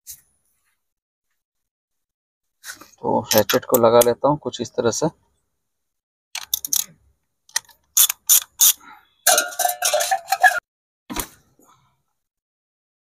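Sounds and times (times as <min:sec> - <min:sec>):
socket ratchet clicking: 0:06.4 - 0:06.9, 0:07.5 - 0:08.8.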